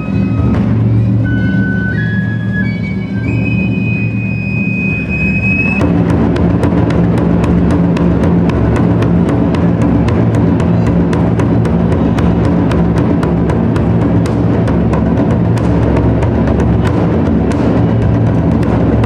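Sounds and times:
low drum rolling rumble: 0:00.0 - 0:19.0
sharp clicking drum strokes: 0:05.8 - 0:19.0.

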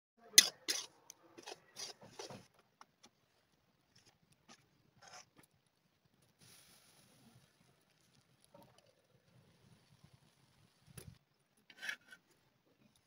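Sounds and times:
ladle scraping through dry flour: 0:00.4 - 0:02.5.

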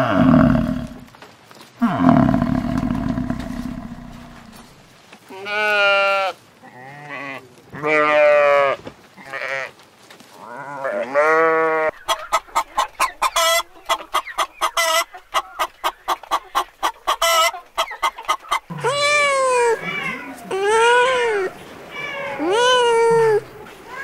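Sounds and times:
sheep bleating: 0:01.8 - 0:04.7, 0:18.7 - 0:21.6
chickens clucking: 0:01.8 - 0:04.8, 0:11.9 - 0:23.9.

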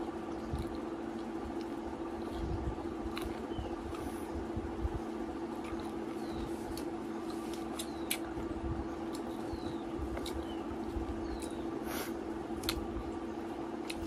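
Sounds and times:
low steady hum: 0:00.0 - 0:14.0
mouth smacks while chewing: 0:11.3 - 0:12.9.

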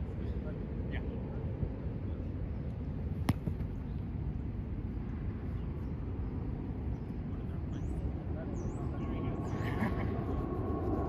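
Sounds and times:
low outdoor rumble: 0:00.0 - 0:11.0
ball smack: 0:03.2 - 0:03.7.

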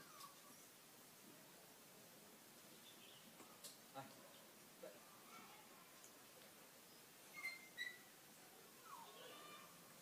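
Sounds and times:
puppy whimpering: 0:00.0 - 0:00.6, 0:08.8 - 0:09.4.

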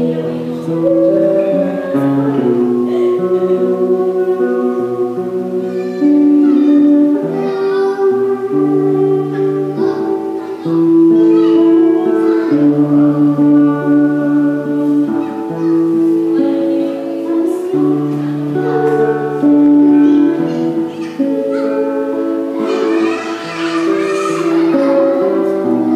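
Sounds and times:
woman singing: 0:00.0 - 0:05.6, 0:16.4 - 0:19.3
acoustic guitar: 0:00.0 - 0:25.9.

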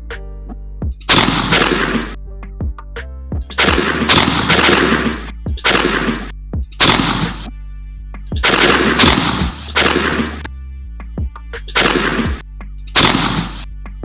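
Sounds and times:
music with bass and beat: 0:00.0 - 0:14.0
shotgun blasts: 0:01.1 - 0:02.2, 0:03.5 - 0:07.5, 0:08.4 - 0:10.5, 0:11.7 - 0:12.4, 0:13.0 - 0:13.7.

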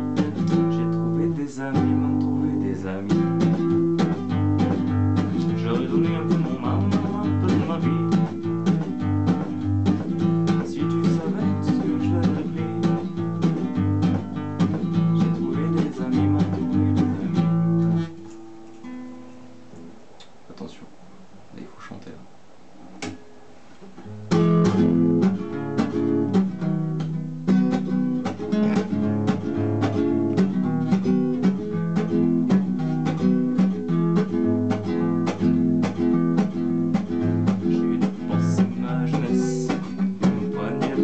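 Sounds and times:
nylon-string guitar strummed chords: 0:00.0 - 0:20.1, 0:22.8 - 0:41.0
guitar handling clicks: 0:23.0 - 0:23.2.

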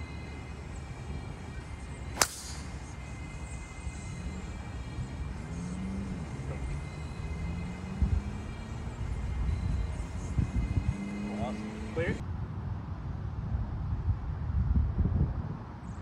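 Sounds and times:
low outdoor rumble: 0:00.0 - 0:16.0
golf club striking ball: 0:02.2 - 0:02.9.

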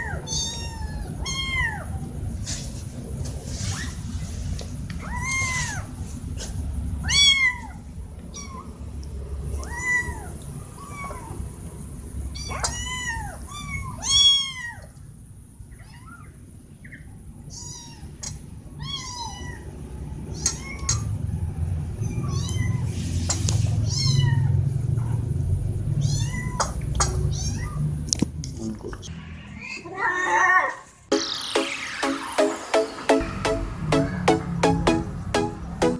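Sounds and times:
kittens meowing: 0:00.0 - 0:02.1, 0:05.0 - 0:05.9, 0:07.0 - 0:08.8, 0:09.5 - 0:11.4, 0:12.3 - 0:15.0, 0:17.5 - 0:18.2, 0:18.8 - 0:19.7, 0:20.3 - 0:21.1, 0:22.0 - 0:22.9, 0:23.7 - 0:24.6, 0:26.0 - 0:27.9.

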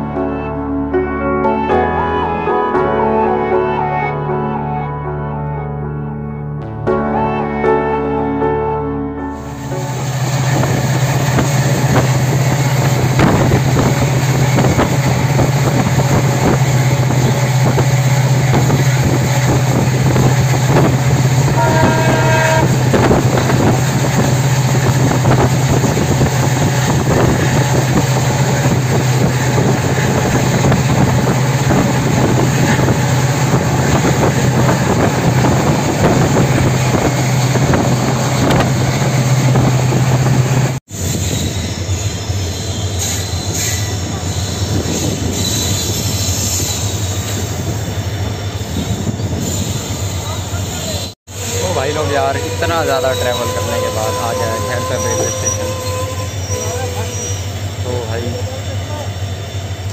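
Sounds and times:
train wheels rumbling on rails: 0:09.7 - 0:59.9
train horn: 0:20.2 - 0:24.3, 0:50.6 - 0:57.6.

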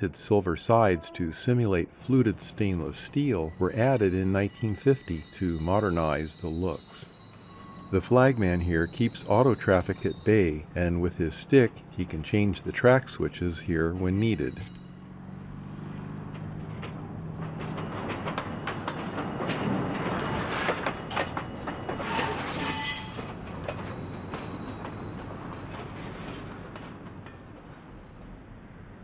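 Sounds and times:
high wheel squeal: 0:02.9 - 0:11.6, 0:13.4 - 0:15.6, 0:17.2 - 0:26.7
wheels clicking over rail joints: 0:16.3 - 0:28.4.

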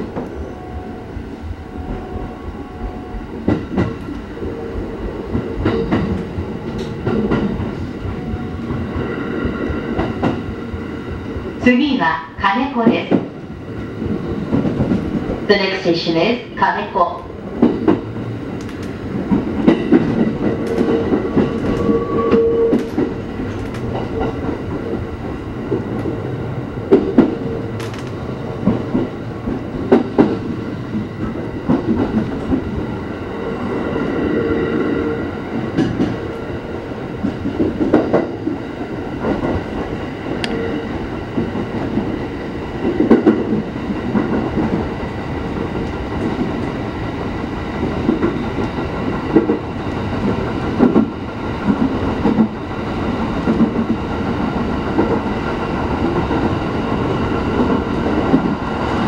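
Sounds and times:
train wheels rumbling on rails: 0:00.0 - 0:59.0
wheels clicking over rail joints: 0:17.6 - 0:22.1, 0:22.7 - 0:26.2.

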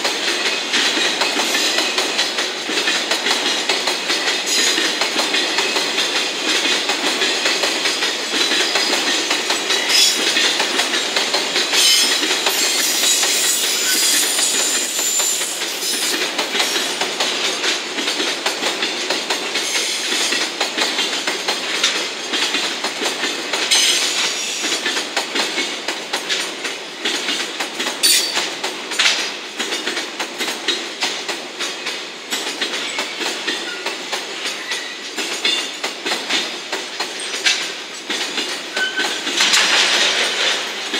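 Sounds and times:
train wheels clacking over rail joints: 0:00.0 - 0:40.9
high metallic wheel squeal: 0:11.8 - 0:16.1.

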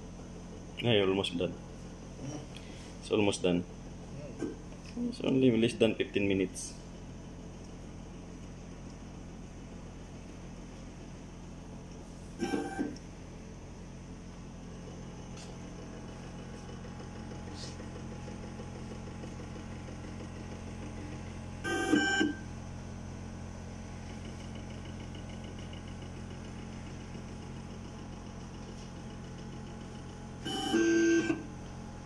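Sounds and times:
machine hum: 0:00.0 - 0:32.0
short machine tone: 0:12.4 - 0:13.0, 0:21.6 - 0:22.6, 0:30.4 - 0:31.5.

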